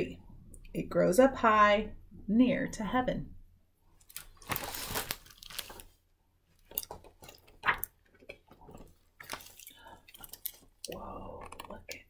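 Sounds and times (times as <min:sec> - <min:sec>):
paper pages rustling: 0:04.0 - 0:06.0, 0:06.6 - 0:10.8.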